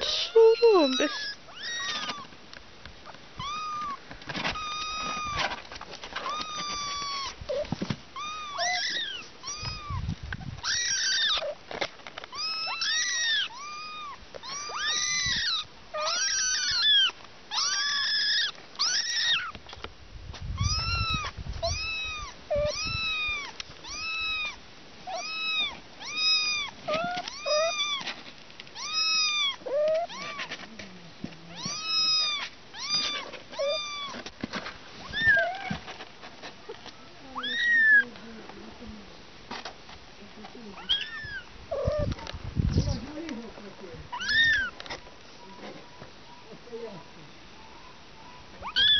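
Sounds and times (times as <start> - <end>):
kittens meowing: 0.0 - 2.3, 3.4 - 5.6, 6.2 - 11.6, 12.3 - 19.6, 20.6 - 28.2, 28.8 - 30.7, 31.5 - 34.3, 35.0 - 35.9, 37.2 - 38.1, 40.8 - 43.2, 44.1 - 44.9, 47.7 - 48.9.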